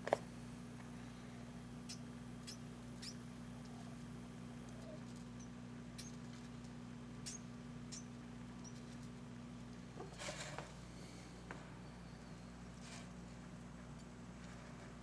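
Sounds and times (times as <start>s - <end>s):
low electrical hum: 0.0s - 15.0s
mouse squeaks: 1.8s - 4.0s, 4.7s - 9.0s.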